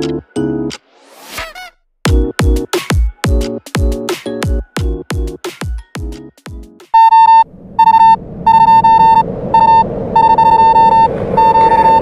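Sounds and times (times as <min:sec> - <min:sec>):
electronic music bass notes: 0:02.1 - 0:06.8
high electronic beeps: 0:07.0 - 0:12.0.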